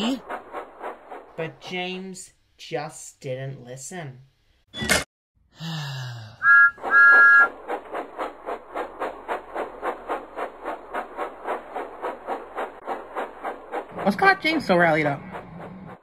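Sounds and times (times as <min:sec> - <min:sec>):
steam train chuffing: 0:00.0 - 0:01.8, 0:06.4 - 0:16.0
steam locomotive whistle: 0:06.4 - 0:07.5.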